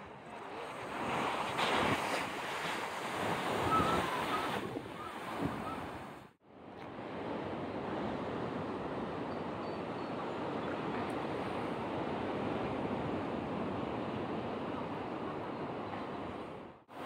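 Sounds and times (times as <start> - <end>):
wind buffeting microphone: 0.0 - 6.3.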